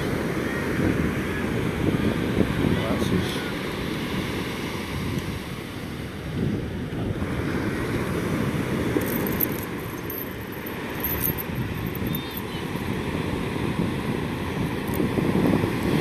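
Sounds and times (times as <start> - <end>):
surf breaking on a beach: 0.0 - 9.0
wind rumbling on microphone: 0.0 - 16.0.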